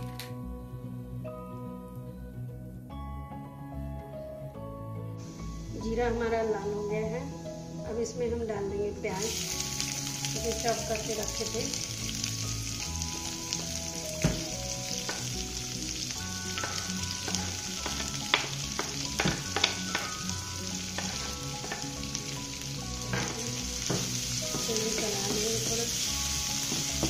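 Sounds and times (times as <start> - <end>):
onions sizzling in hot oil: 9.0 - 27.0
spatula stirring: 20.9 - 21.9.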